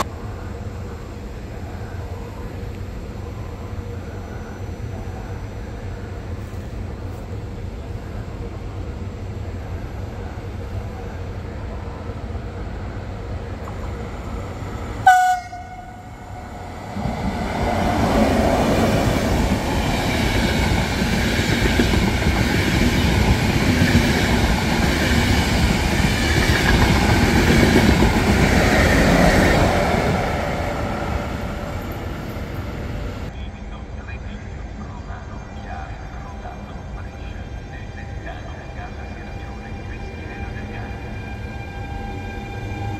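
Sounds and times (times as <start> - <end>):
train horn blast: 15.0 - 16.2
train wheels on rails: 16.4 - 33.3.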